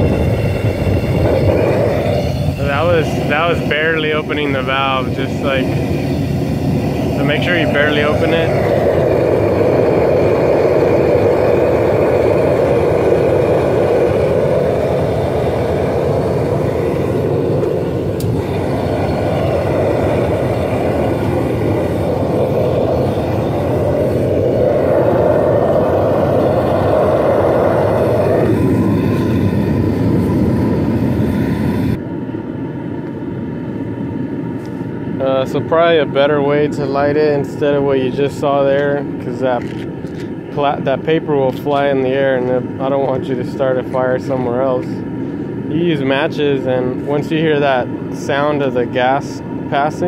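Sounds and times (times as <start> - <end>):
gas burner rushing: 0.0 - 50.0.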